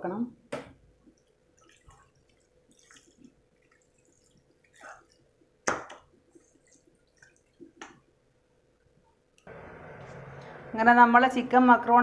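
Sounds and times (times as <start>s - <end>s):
spatula stirring thick pasta: 1.2s - 8.2s.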